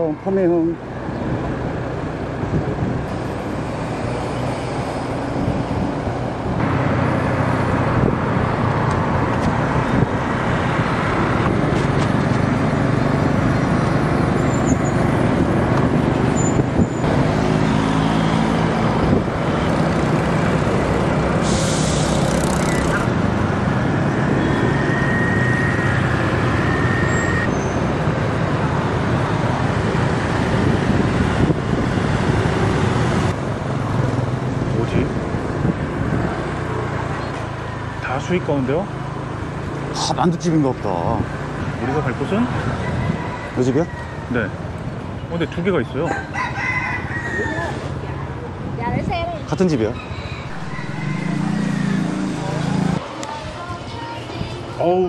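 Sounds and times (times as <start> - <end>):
passing motorbikes and cars: 0.0 - 55.0
wind and tyres rushing: 0.0 - 55.0
brief hiss: 21.4 - 22.2
scooter engine: 22.0 - 26.6, 50.4 - 53.1.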